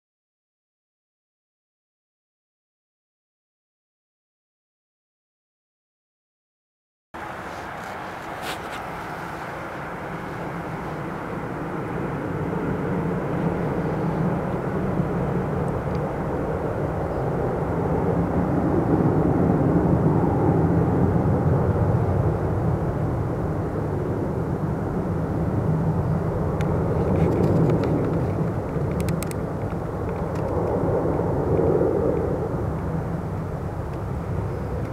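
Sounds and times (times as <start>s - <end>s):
jet engines running up: 7.2s - 34.9s.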